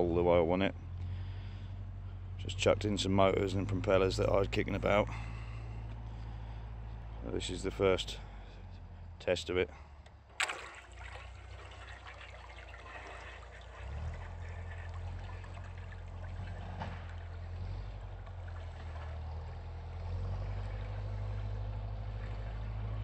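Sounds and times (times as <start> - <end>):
water churned by propellers: 10.3 - 23.0.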